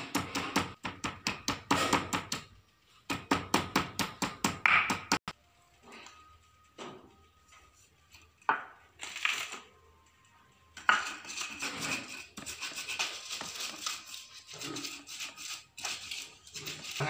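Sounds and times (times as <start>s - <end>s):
stone knocks and scrapes: 10.8s - 13.5s
stone pestle rubbing on stone: 10.8s - 17.0s.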